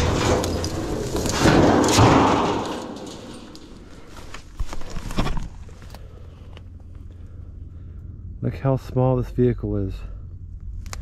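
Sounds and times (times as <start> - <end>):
metal knocks and thuds: 0.0 - 4.4
metal dryer scraping on rocks: 0.0 - 5.5.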